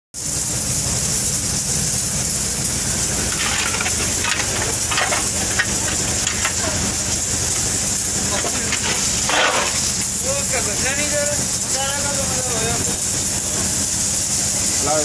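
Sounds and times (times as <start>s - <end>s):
low steady rumble: 0.2s - 14.8s
water spraying from hose: 0.2s - 15.0s.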